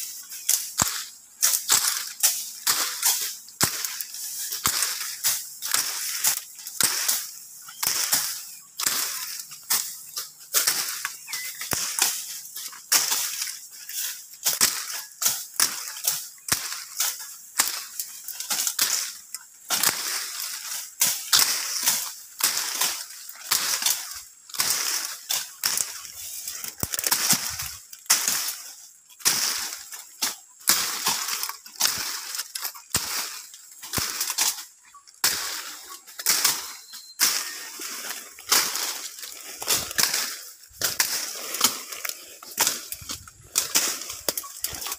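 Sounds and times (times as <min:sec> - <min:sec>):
leaves and branches rustling: 0:00.0 - 0:44.9
machete chopping brush: 0:00.0 - 0:44.9.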